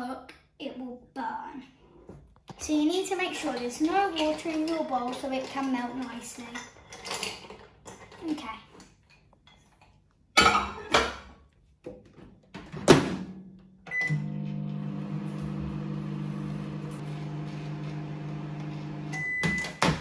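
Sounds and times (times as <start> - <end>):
microwave short beep: 13.9 - 14.4, 19.0 - 19.8
microwave oven humming: 13.9 - 19.8.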